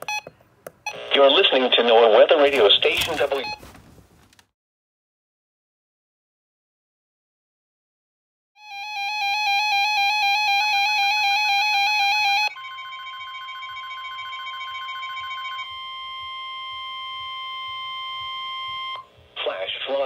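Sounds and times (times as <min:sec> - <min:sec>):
alternating two-tone alarm beeping: 0:08.6 - 0:19.3
steady alarm tone: 0:08.6 - 0:19.4.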